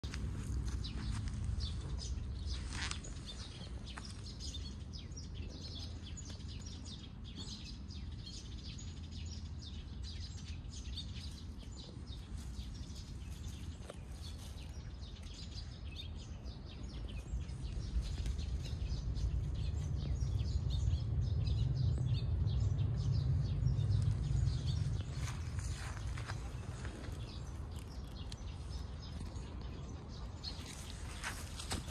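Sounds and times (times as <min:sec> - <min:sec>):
low rumble: 0:14.7 - 0:31.9.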